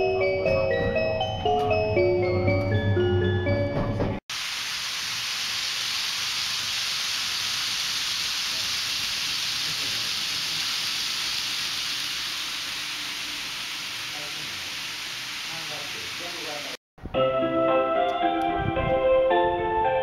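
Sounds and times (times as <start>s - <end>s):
chiming mallet percussion music: 0.0s - 4.2s
model trains running on track: 6.6s - 16.8s.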